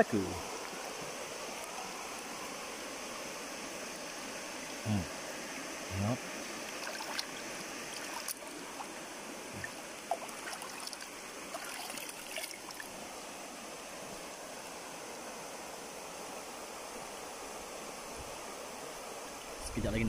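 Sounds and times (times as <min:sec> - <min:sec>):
river rushing over rocks: 0:00.0 - 0:19.6
light water splashes: 0:05.9 - 0:13.0.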